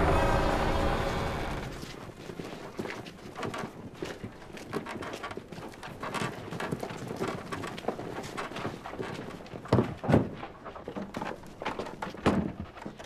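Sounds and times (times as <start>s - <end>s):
wooden knocks: 3.4s - 13.0s.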